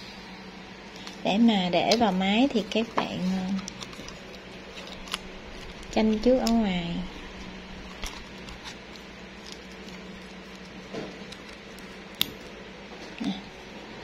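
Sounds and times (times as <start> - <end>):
faint low hum: 0.0 - 14.0
plastic parts clicking and rubbing: 1.8 - 6.7, 7.4 - 12.4.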